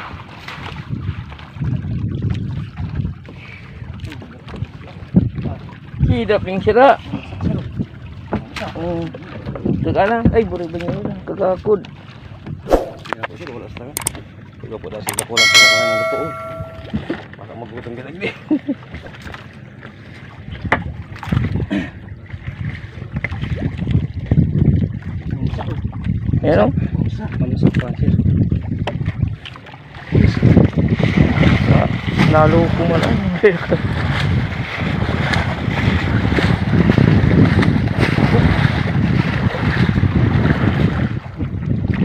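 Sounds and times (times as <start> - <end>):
wind rumbling on microphone: 0.0 - 6.4, 20.4 - 42.0.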